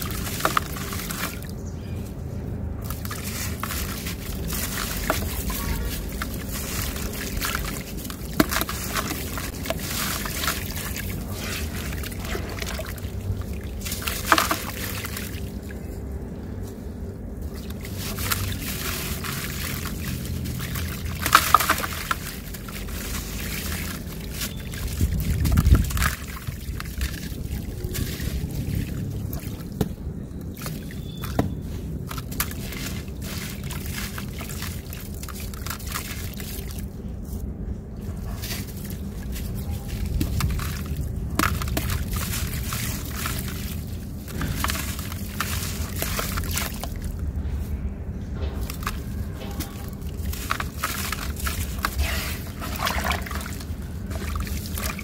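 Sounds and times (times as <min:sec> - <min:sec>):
sand trickling into water: 0:00.0 - 0:01.6, 0:02.8 - 0:29.8, 0:30.4 - 0:47.4, 0:48.6 - 0:55.0.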